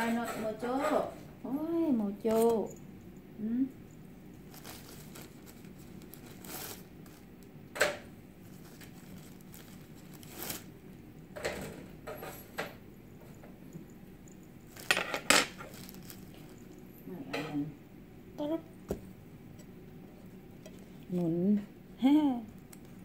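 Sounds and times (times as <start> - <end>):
metal utensils and cookware clinking: 0.0 - 1.2, 14.8 - 15.7.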